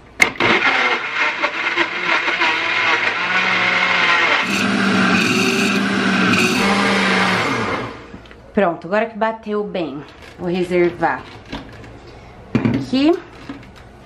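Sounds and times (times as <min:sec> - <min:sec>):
blender running: 0:00.3 - 0:08.1.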